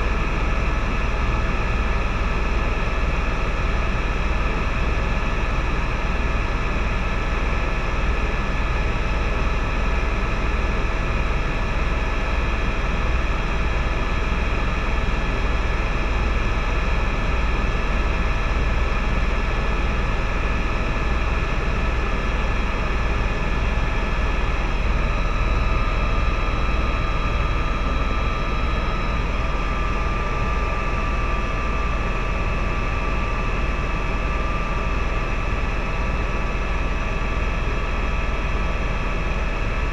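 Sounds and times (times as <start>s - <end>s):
helicopter cabin drone: 0.0s - 39.9s
high whine: 21.4s - 38.8s.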